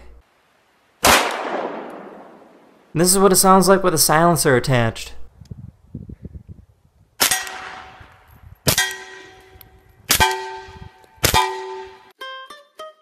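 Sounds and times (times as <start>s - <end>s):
suppressed pistol shots: 1.0s - 2.6s, 7.2s - 8.0s, 10.1s - 10.6s, 11.2s - 11.8s
metallic clang of steel targets: 7.2s - 8.0s, 8.7s - 12.1s.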